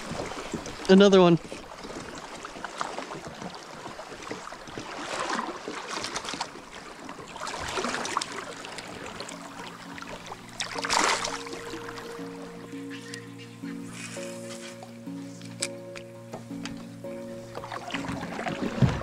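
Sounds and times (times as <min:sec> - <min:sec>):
fish splashing in water: 0:01.7 - 0:09.4, 0:10.1 - 0:12.0
background music: 0:08.2 - 0:19.0.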